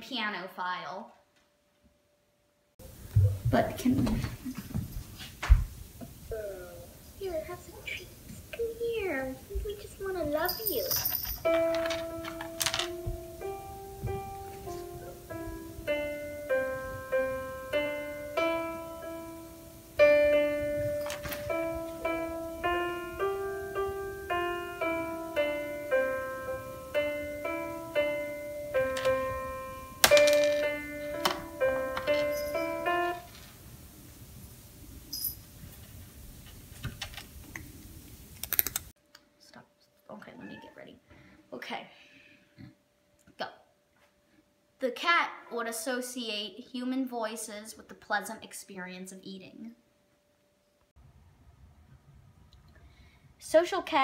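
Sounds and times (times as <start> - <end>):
slow gentle piano melody: 11.1 - 33.8.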